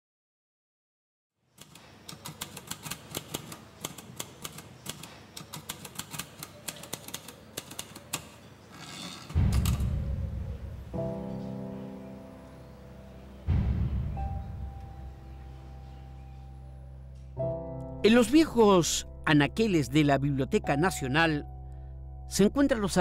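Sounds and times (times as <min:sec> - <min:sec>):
typewriter keys clacking: 0:01.6 - 0:08.5
deep boom: 0:09.4 - 0:11.1, 0:13.4 - 0:15.2.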